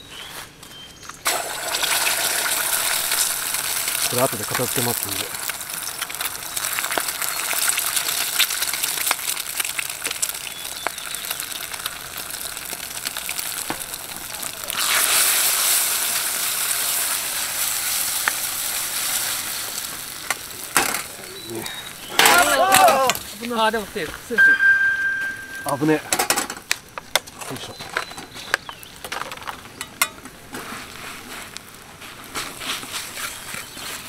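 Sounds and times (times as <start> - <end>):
eggs sizzling in hot oil: 1.2 - 23.8.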